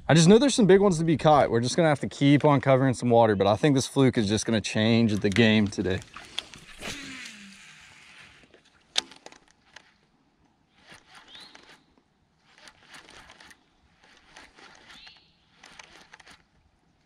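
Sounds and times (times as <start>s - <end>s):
fishing reel being cranked: 5.1s - 10.0s, 10.8s - 16.5s.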